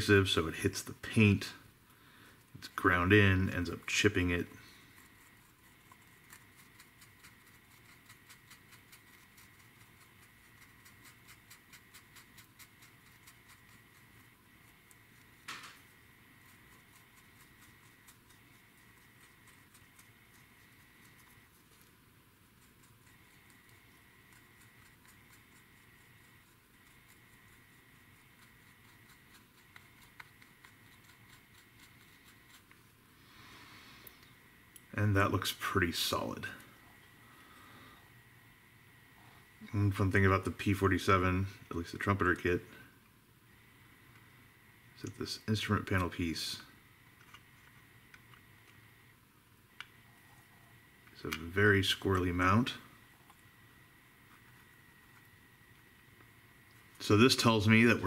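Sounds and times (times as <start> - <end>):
faint high whine: 0.0 - 58.0
paintbrush scrubbing ticks: 2.4 - 32.9, 54.1 - 58.0.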